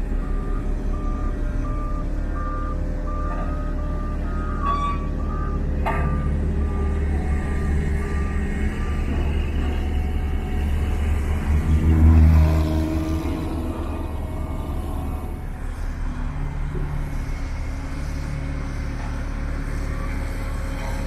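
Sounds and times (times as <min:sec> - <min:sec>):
reversing alarm beeps: 0:00.0 - 0:11.2
diesel engine running: 0:00.0 - 0:21.0.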